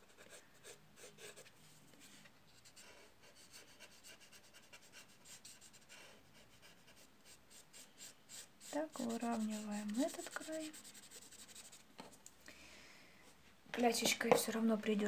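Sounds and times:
scratchy strokes on paper: 0.0s - 11.8s.

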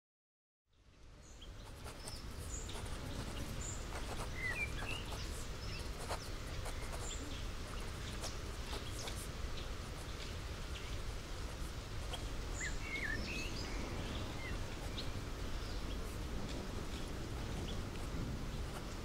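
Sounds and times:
bird chirps and calls: 1.3s - 11.0s, 12.1s - 16.1s
steady low rumble: 9.4s - 19.0s.

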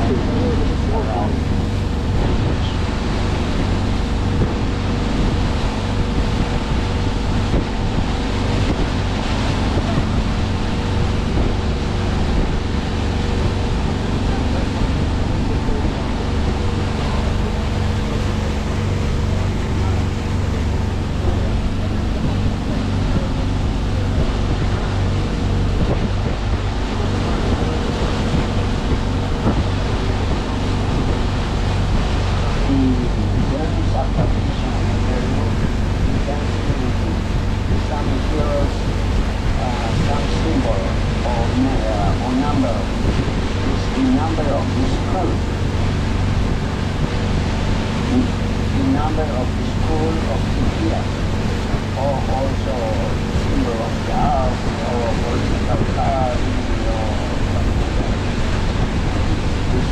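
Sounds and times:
boat engine running: 0.0s - 59.9s
water rushing: 0.0s - 59.9s
wind buffeting microphone: 0.0s - 59.9s.

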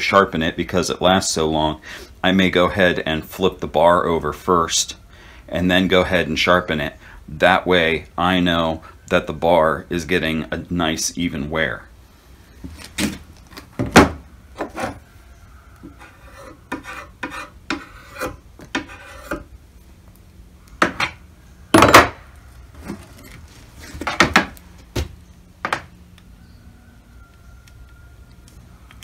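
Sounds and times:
metal scraping on plastic table: 14.6s - 15.1s, 15.8s - 19.5s.

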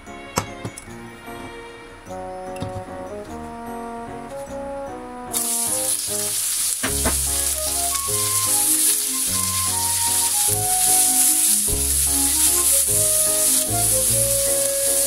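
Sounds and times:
vegetables sizzling in hot oil: 5.3s - 15.0s.

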